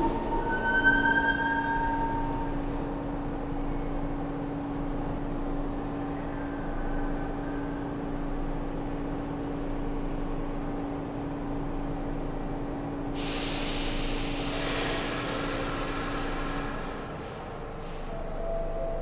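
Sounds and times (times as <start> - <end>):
subway train humming: 0.0 - 19.0
air brakes hissing: 13.1 - 18.3.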